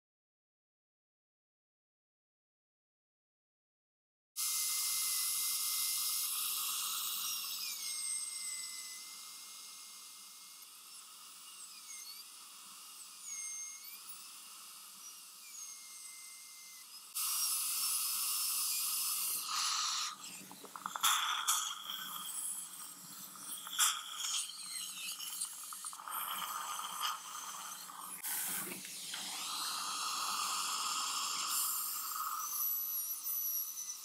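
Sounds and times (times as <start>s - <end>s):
dental drill whining: 4.4s - 34.0s.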